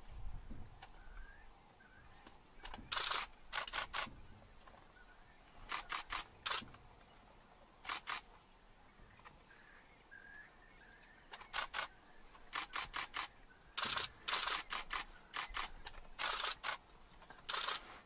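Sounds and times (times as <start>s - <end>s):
camera shutters clicking: 2.7s - 4.1s, 5.7s - 6.6s, 7.8s - 8.3s, 11.4s - 11.9s, 12.5s - 16.8s, 17.4s - 17.8s.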